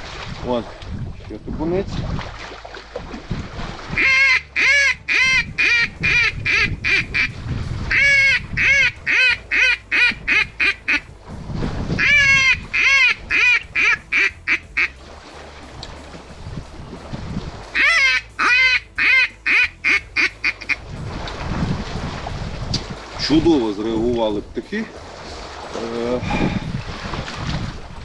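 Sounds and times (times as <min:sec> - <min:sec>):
duck call quacking: 0:04.0 - 0:11.1, 0:12.0 - 0:14.9, 0:17.8 - 0:20.8.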